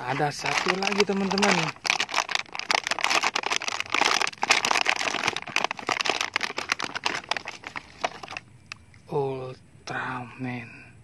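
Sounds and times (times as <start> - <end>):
plastic packaging crinkling: 0.0 - 8.4.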